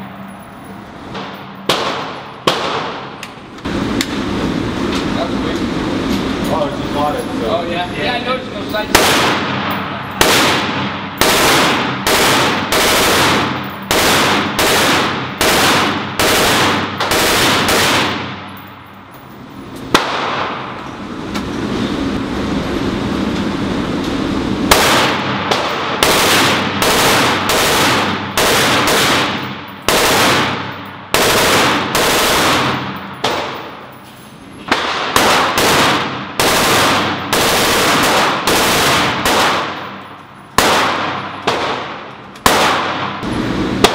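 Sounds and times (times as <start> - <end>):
steady noise: 0.0 - 43.9
rifle shots echoing indoors: 1.1 - 3.3, 8.9 - 18.8, 19.9 - 20.8, 24.7 - 33.9, 34.7 - 43.9.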